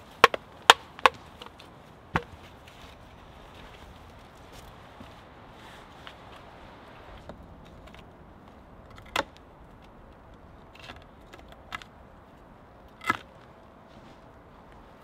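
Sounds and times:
wooden poles knocking: 0:00.0 - 0:02.5.

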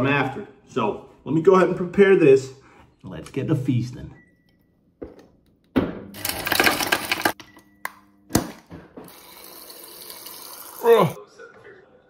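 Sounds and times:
ice cubes clattering into a glass: 0:06.2 - 0:07.4
water pouring into a glass: 0:09.1 - 0:11.2.

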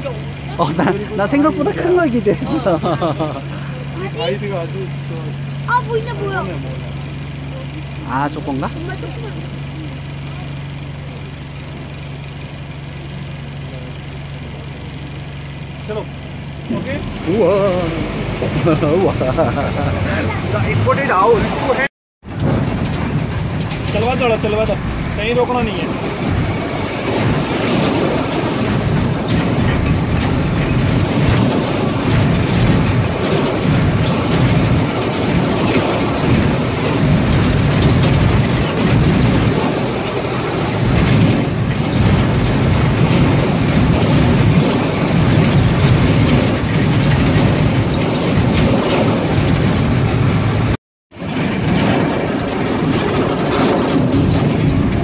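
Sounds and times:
vehicle engine and tyres rumbling: 0:00.0 - 0:55.0
wind buffeting: 0:16.8 - 0:55.0.

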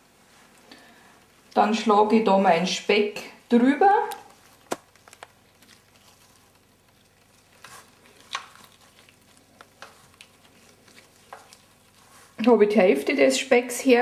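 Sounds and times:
wet handling of raw meat: 0:04.1 - 0:12.4.

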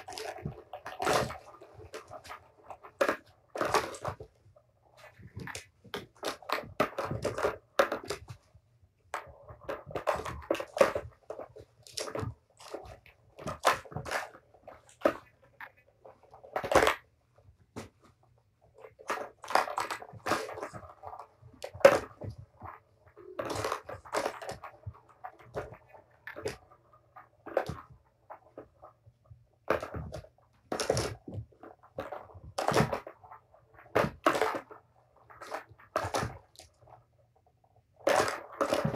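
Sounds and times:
balls rattling on plastic tracks: 0:00.0 - 0:38.9
plastic toy clicks and knocks: 0:29.6 - 0:37.0, 0:38.0 - 0:38.9.

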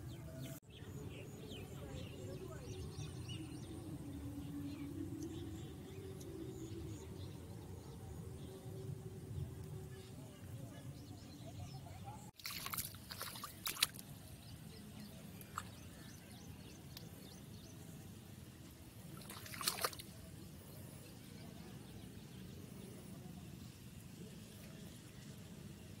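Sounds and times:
water trickling in channel: 0:12.4 - 0:14.3, 0:19.1 - 0:20.1.

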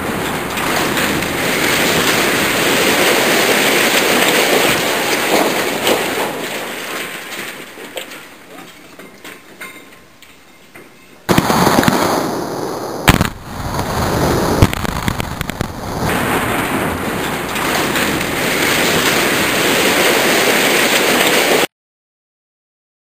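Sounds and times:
explosive charges cracking: 0:00.0 - 0:07.8, 0:11.3 - 0:21.7
structure collapsing rumble: 0:00.0 - 0:09.5, 0:11.3 - 0:21.7.

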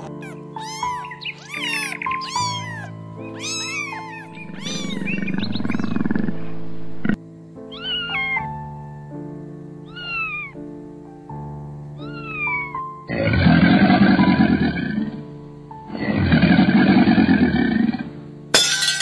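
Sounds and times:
cat meowing: 0:00.0 - 0:06.2, 0:07.7 - 0:08.5, 0:09.8 - 0:10.6, 0:12.0 - 0:12.9
rough animal calls: 0:00.0 - 0:07.2
background music sustained notes: 0:00.0 - 0:19.0.

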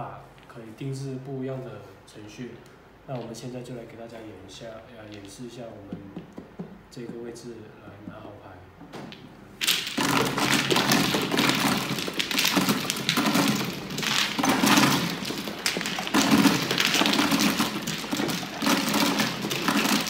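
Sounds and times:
plastic mahjong tiles clattering: 0:05.0 - 0:05.5, 0:09.6 - 0:20.0.

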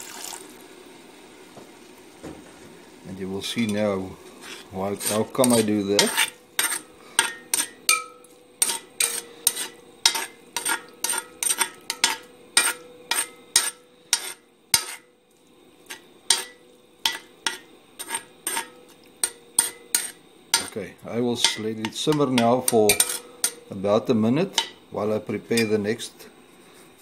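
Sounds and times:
spoon scraping pot: 0:03.6 - 0:15.1, 0:15.8 - 0:20.8, 0:21.4 - 0:23.7.

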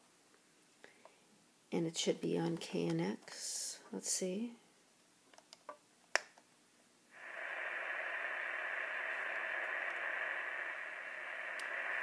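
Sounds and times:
radio static hiss: 0:07.1 - 0:12.0.

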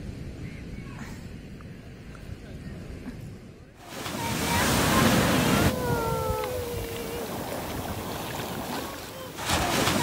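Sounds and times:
ocean waves breaking on sand: 0:03.8 - 0:10.0.

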